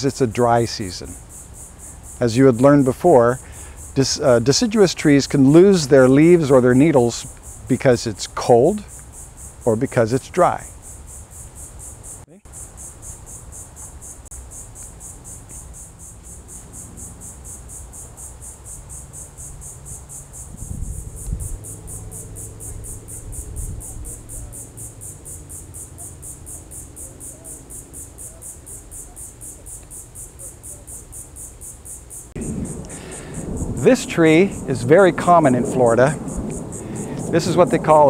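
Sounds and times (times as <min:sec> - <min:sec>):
insects chirping: 0:00.0 - 0:38.0
low rumble: 0:32.4 - 0:38.0.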